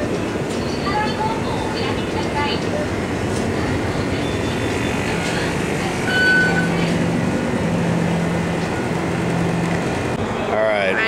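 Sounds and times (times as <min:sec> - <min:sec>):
store background din: 0:00.0 - 0:07.5
short high beep: 0:06.0 - 0:06.8.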